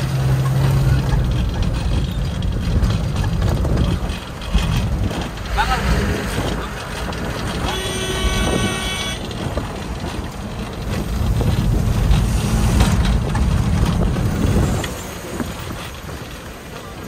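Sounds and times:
low rumble of vehicle noise: 0.0 - 17.0
vehicle horn: 7.5 - 9.4.

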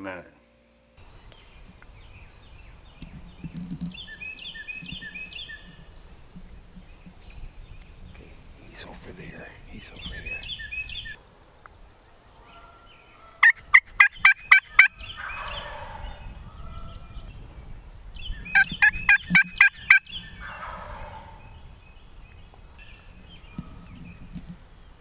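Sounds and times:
wild turkey gobbling: 12.5 - 16.2, 18.5 - 21.4.

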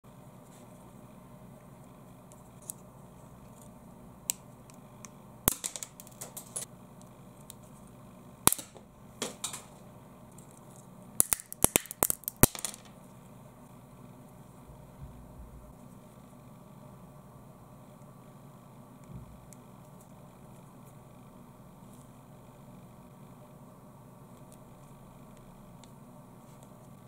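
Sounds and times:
plastic pen cracking and snapping: 11.2 - 12.9.

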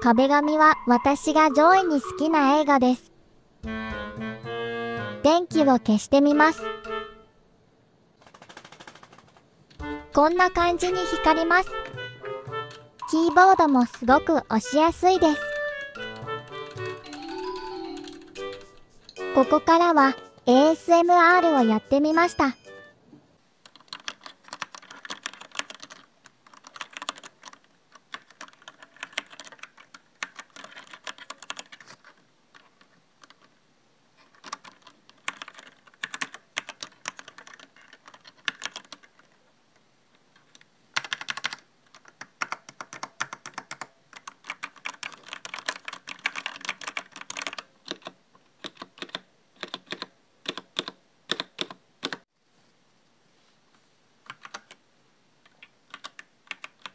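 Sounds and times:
mechanical keyboard typing: 8.2 - 12.0, 13.0 - 14.2, 15.2 - 19.2, 23.6 - 33.5, 34.2 - 39.4, 40.4 - 52.2, 54.2 - 54.8, 55.5 - 56.9.

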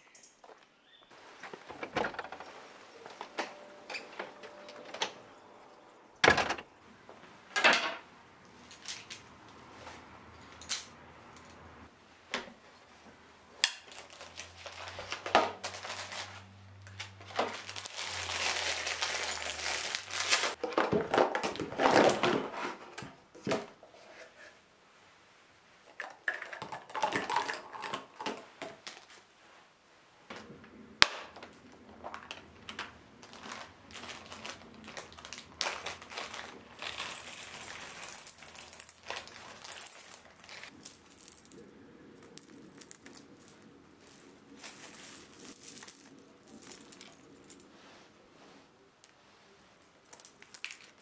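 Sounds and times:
door opening: 1.5 - 5.2
plastic bottles clattering: 17.1 - 22.7.

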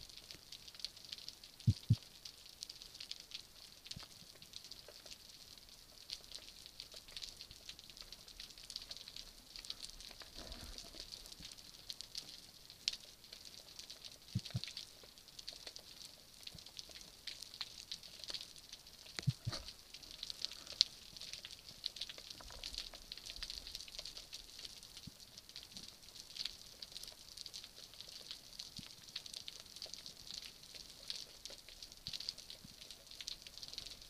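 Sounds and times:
snapping shrimp crackle: 13.9 - 25.1.

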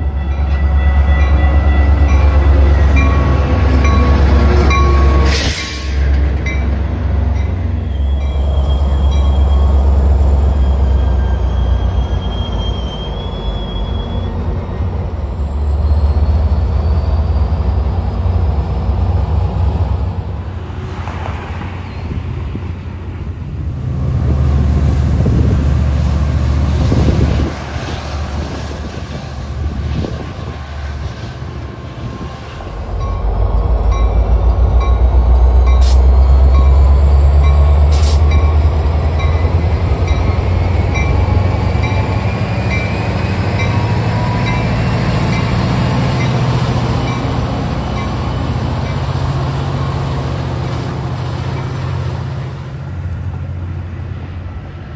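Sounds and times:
railcar wheel clatter: 0.0 - 13.0, 24.3 - 54.4
locomotive engine drone: 0.0 - 54.9
high wheel squeal: 7.4 - 17.6.

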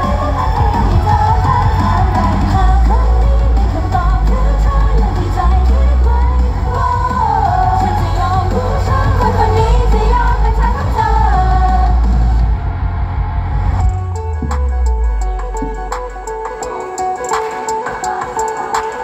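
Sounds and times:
female group vocals: 0.0 - 12.4
pop song through sound system: 0.0 - 19.0.

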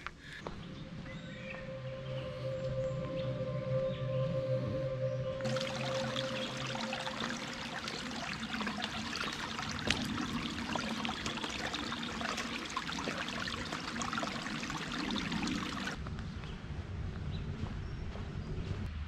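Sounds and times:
stream babbling over rocks: 5.5 - 16.0.

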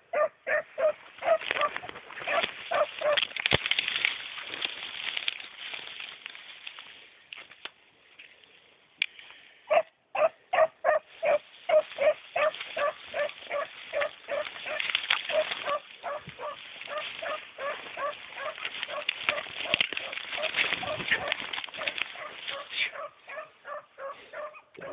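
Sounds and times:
beagle barking: 0.0 - 3.2, 9.7 - 24.9.

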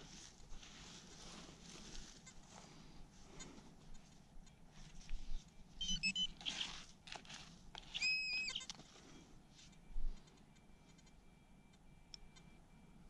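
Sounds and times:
short high-pitched tones: 5.8 - 6.7
hands crumbling dry soil: 6.4 - 8.0.

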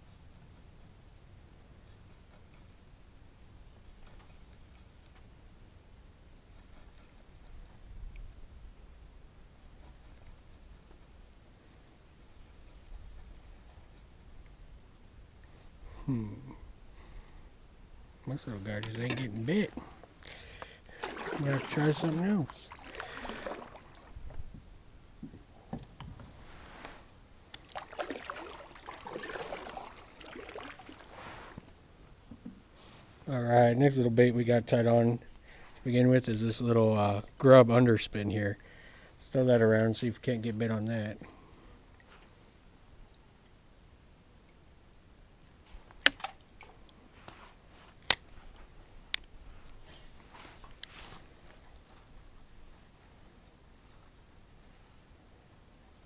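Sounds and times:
soft rustling: 9.6 - 14.4, 26.1 - 31.8, 32.5 - 33.3, 46.6 - 55.1
water splashing against kayak hull: 20.6 - 24.5, 27.6 - 31.7.

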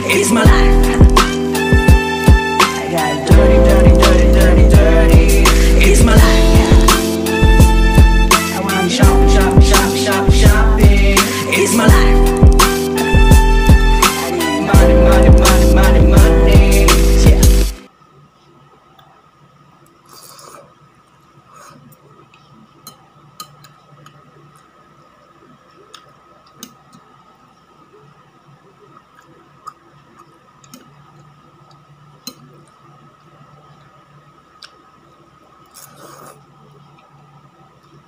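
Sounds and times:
faint steady hum: 0.0 - 38.0
noodles slurped: 35.7 - 36.4.

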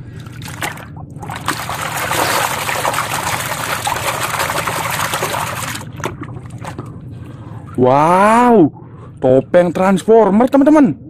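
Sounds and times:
muddy water splashing: 0.0 - 6.9.

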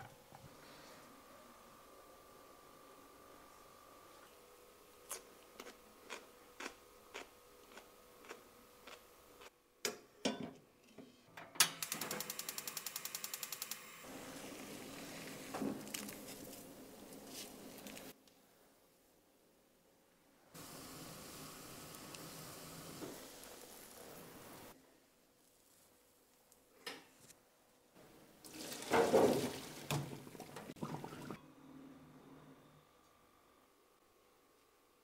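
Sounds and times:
gas burner hissing: 20.6 - 24.8.

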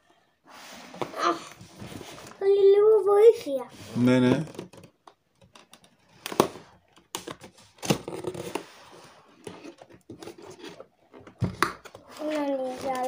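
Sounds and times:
cardboard flaps scraping and rustling: 12.0 - 13.0.

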